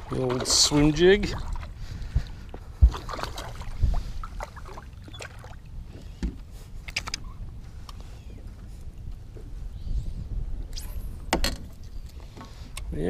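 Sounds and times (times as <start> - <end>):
water lapping against boat: 0.0 - 7.4
wind rumble on microphone: 0.0 - 13.0
small splashes: 2.9 - 5.6.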